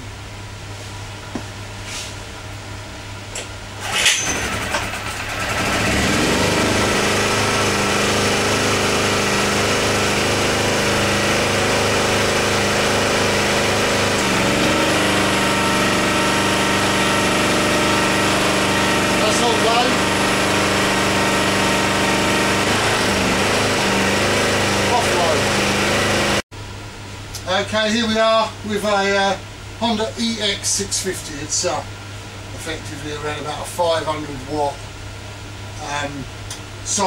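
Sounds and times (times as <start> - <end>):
generator engine running: 3.3 - 26.4
generator starter pull: 3.8 - 7.0.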